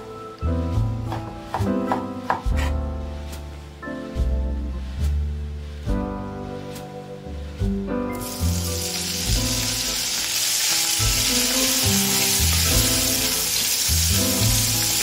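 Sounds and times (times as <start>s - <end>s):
bacon sizzling in a frying pan: 8.2s - 15.0s.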